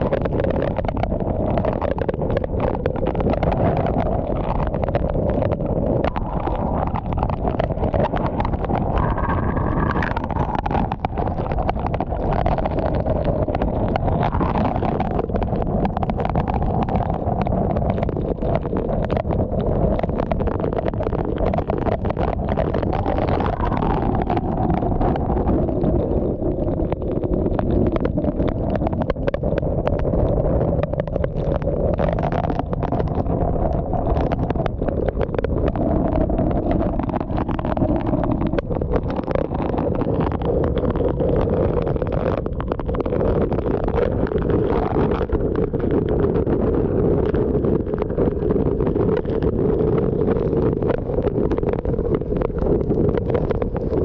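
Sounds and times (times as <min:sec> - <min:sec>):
wind howling around a car: 0:00.0 - 0:54.0.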